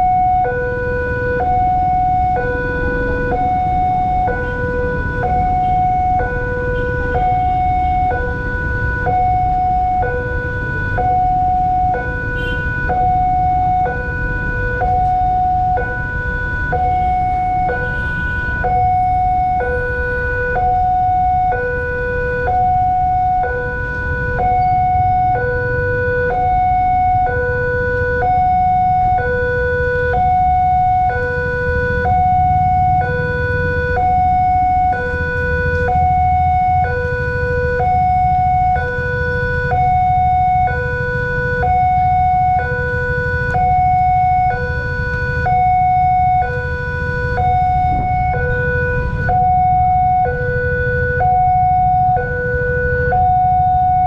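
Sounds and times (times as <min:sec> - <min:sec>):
low rumble of street traffic: 0:00.0 - 0:54.0
two-tone level-crossing alarm: 0:00.0 - 0:54.0.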